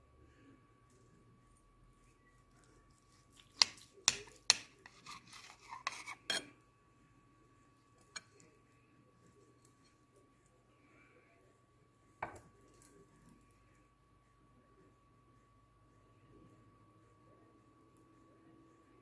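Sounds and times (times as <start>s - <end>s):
knife clicking and scraping on glass plate: 3.5s - 6.5s, 8.1s - 8.4s.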